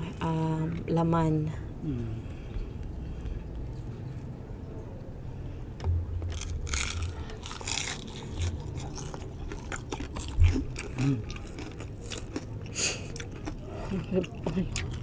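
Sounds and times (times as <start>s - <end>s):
crunchy chewing: 6.3s - 15.0s.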